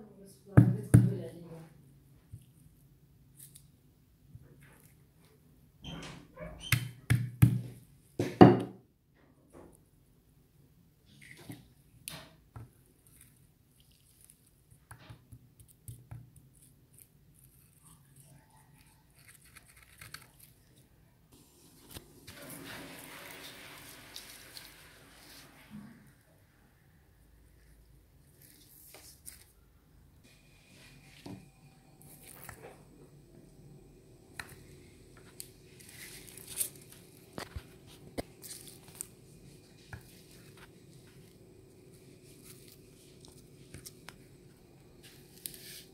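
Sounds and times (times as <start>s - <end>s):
coconut husk fibres tearing: 12.9s - 14.9s, 15.6s - 20.9s, 32.0s - 32.6s, 35.2s - 39.2s.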